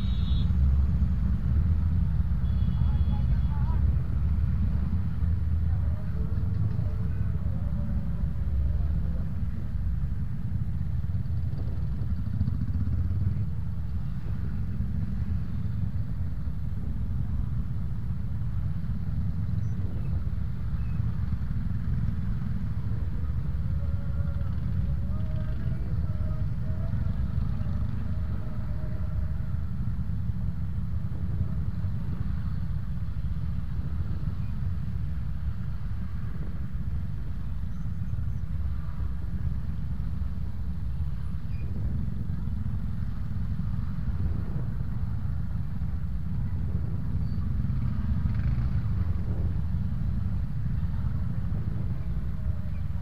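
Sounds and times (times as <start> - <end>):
scooter engines idling in traffic: 0.0 - 53.0.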